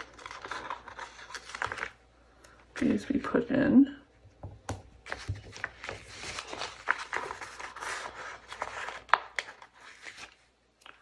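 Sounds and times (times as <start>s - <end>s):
paper sticker sheet rustling: 0.0s - 2.0s, 5.0s - 11.0s.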